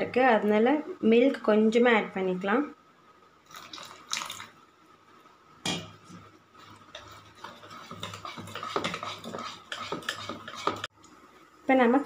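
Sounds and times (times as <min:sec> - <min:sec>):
whisk scraping a ceramic bowl: 0:06.6 - 0:10.9.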